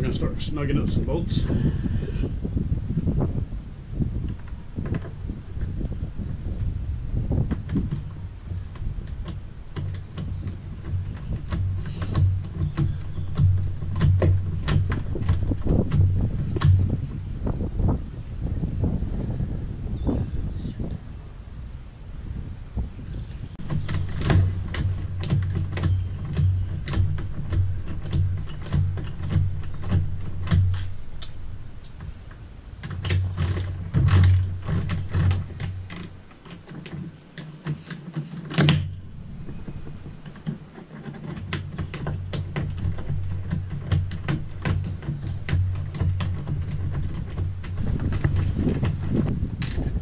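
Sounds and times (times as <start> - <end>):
low thud: 10.2 - 18.0.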